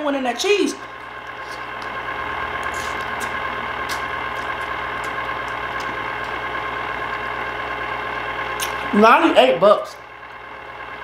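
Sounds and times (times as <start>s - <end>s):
motor hum: 0.0s - 11.0s.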